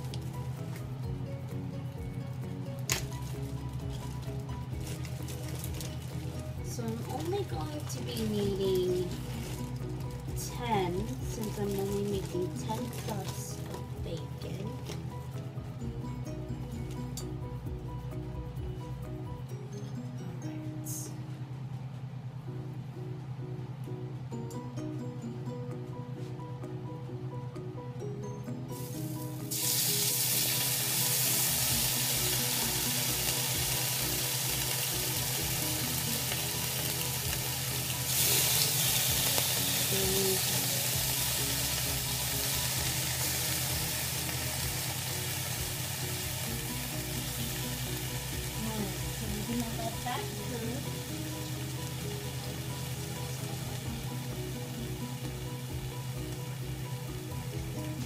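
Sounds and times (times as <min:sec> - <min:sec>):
bacon sizzling in a frying pan: 0:02.9 - 0:14.0, 0:28.8 - 0:58.0.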